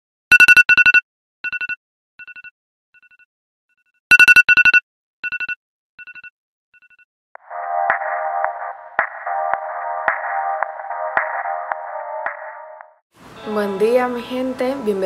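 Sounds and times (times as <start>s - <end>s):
rapid two-note electronic alarm beeps: 0.3s - 7.0s.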